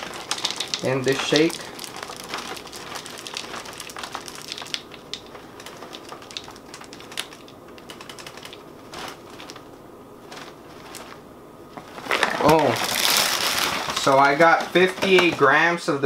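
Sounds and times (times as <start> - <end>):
cereal pouring into plastic cup: 0.0 - 7.5.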